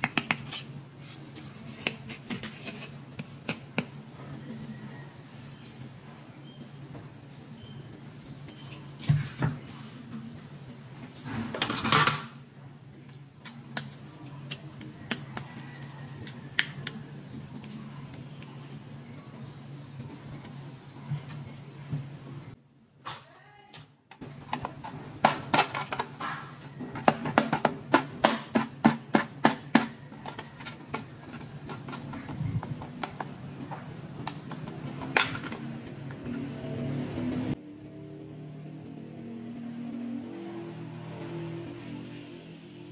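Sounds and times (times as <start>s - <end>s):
plastic toys clicking and tapping: 24.1s - 35.7s.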